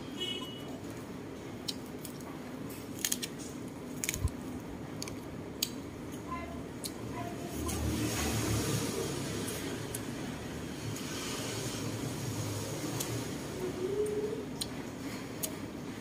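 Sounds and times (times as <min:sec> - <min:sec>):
lettuce leaves handled: 0:01.8 - 0:05.2.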